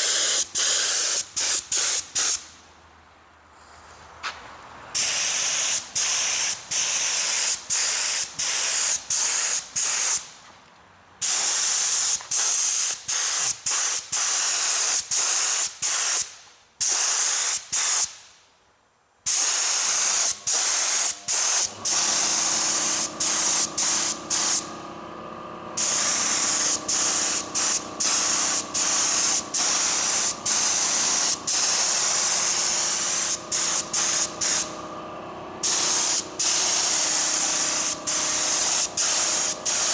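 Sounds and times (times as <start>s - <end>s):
spray gun hissing: 0.0s - 2.4s, 4.9s - 10.3s, 11.2s - 18.2s, 19.3s - 25.0s, 25.7s - 34.9s, 35.6s - 39.9s
steady machine hum: 20.1s - 39.9s.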